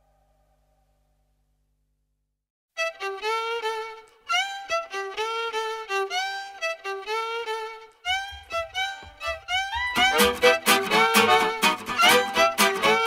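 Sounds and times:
violin melody with sliding notes: 2.8 - 13.0
low beat: 8.1 - 13.0.

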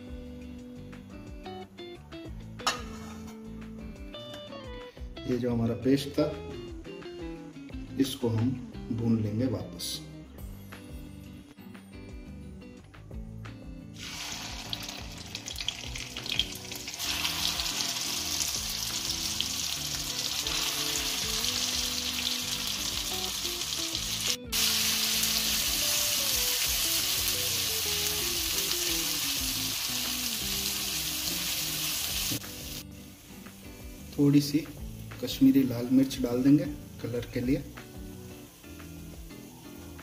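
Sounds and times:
paste sizzling in hot oil: 14.0 - 40.0.

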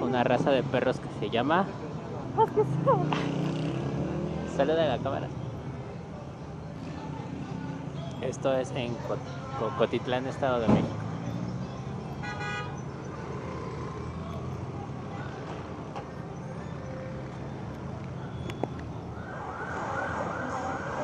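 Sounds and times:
police siren yelping: 19.1 - 21.0.

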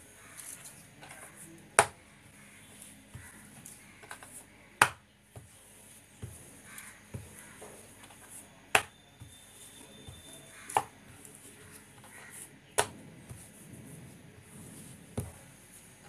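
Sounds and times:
rolling pin rubbing on dough: 0.2 - 16.0
rolling pin knocking on board: 4.8 - 5.5, 6.2 - 9.4, 12.8 - 13.5.

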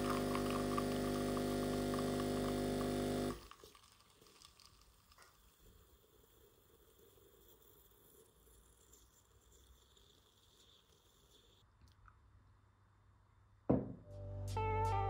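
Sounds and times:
coffee dripping into cup: 0.0 - 6.9
espresso machine pump humming: 0.0 - 7.8.

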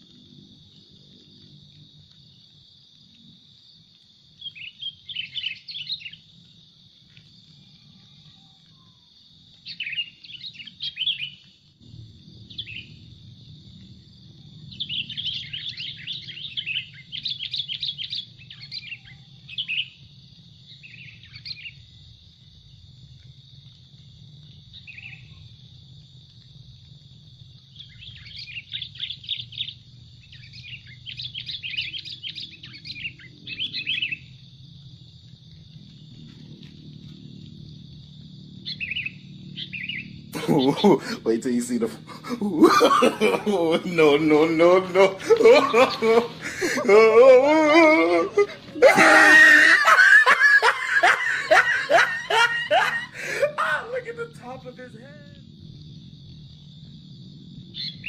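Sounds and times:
high insect drone: 0.0 - 58.0
birds chattering chirps: 4.4 - 6.2, 9.6 - 11.5, 12.5 - 13.0, 14.7 - 20.0, 27.7 - 34.4, 38.6 - 55.0.

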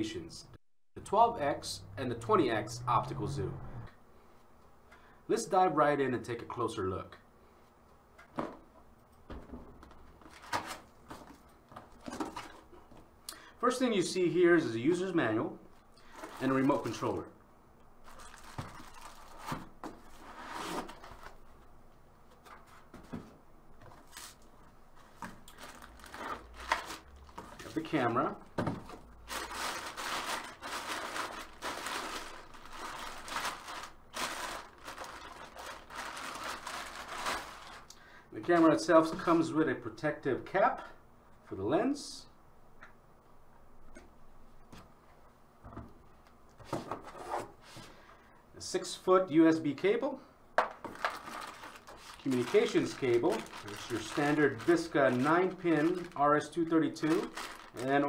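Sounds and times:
plastic bag crinkling: 18.0 - 19.5, 25.3 - 27.8, 29.1 - 37.9, 50.8 - 58.0.

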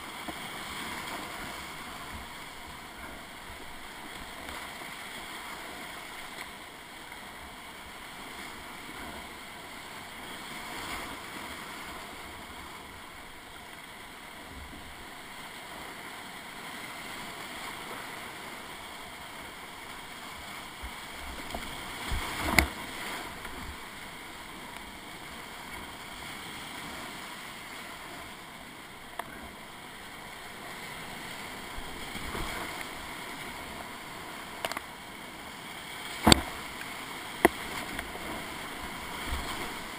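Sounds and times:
whitewater rapids rushing: 14.9 - 39.9.

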